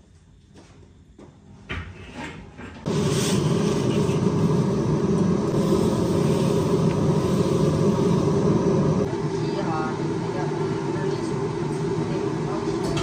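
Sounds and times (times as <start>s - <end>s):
water boiling in a wok: 2.8s - 13.0s.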